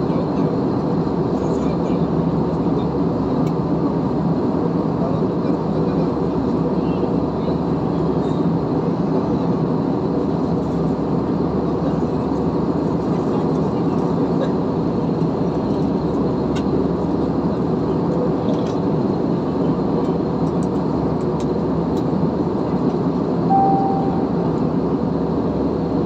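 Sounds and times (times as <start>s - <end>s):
jet engine roar in cabin: 0.0s - 26.0s
short steady tone: 23.5s - 24.5s.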